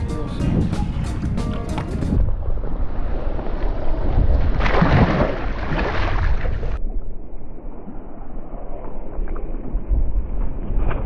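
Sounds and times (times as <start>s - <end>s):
wind buffeting microphone: 0.0s - 7.3s.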